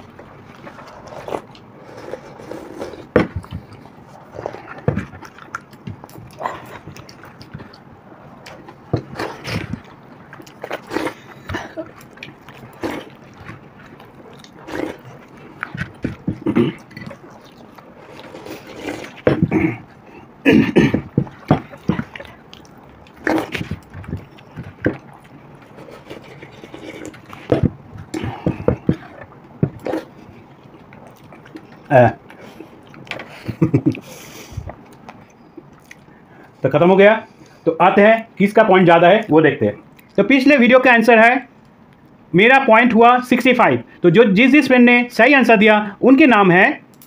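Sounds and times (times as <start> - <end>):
wet chewing and slurping: 0.0 - 36.2
gulping water: 0.0 - 36.4.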